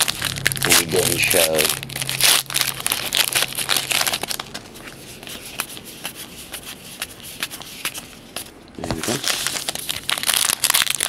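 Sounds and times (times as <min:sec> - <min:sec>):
wrapper crinkling as torn open: 0:00.0 - 0:04.7, 0:09.0 - 0:11.0.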